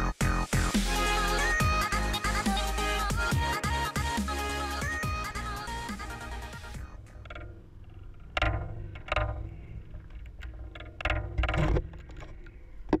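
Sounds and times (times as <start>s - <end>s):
electronic music: 0.0s - 7.4s.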